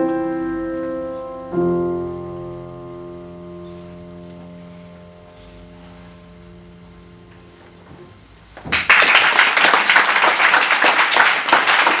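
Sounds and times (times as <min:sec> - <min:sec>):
grand piano chord: 0:00.0 - 0:08.5
audience applause: 0:08.7 - 0:12.0.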